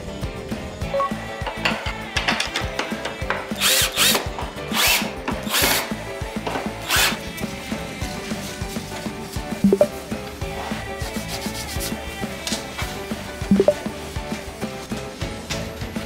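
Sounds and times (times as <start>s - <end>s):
drill driving screws into wood: 3.5s - 5.9s, 6.8s - 7.2s.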